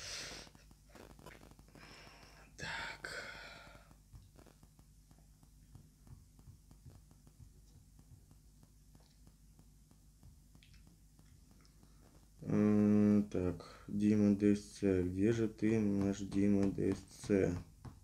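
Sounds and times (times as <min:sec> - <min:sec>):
faint steady hum: 0:00.0 - 0:18.0
finger tapping on phone screen: 0:15.6 - 0:18.0.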